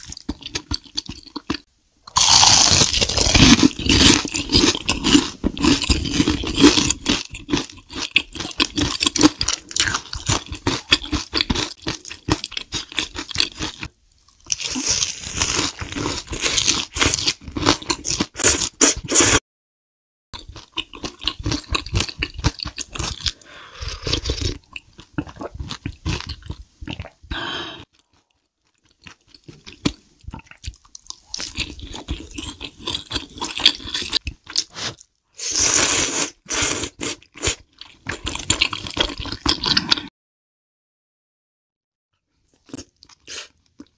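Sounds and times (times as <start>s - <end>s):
crunching fried food: 0.0s - 19.4s, 20.4s - 23.4s, 28.0s - 40.0s
slurping noodle soup: 32.6s - 40.1s.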